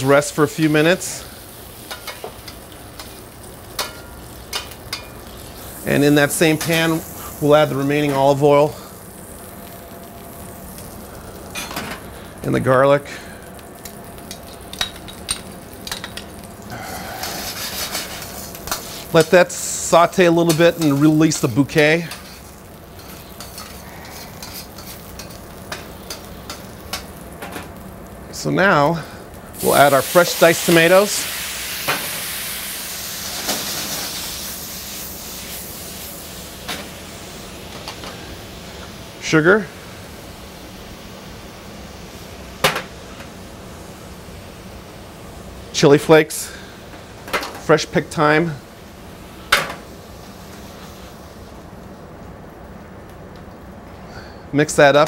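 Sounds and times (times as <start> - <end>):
garlic sizzling in hot oil: 0.0 - 55.0
metal utensils clicking on pan: 1.9 - 5.2, 14.2 - 16.3, 20.4 - 21.2, 23.0 - 27.6.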